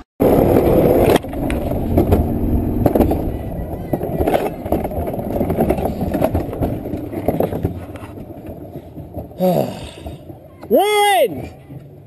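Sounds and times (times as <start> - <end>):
coaster sled rattling on metal rail: 0.2 - 9.4.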